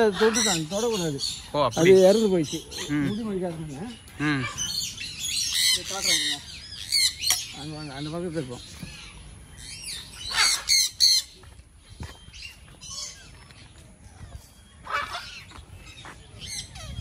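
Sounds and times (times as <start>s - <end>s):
parrots squawking: 0.0s - 11.4s, 14.2s - 17.0s.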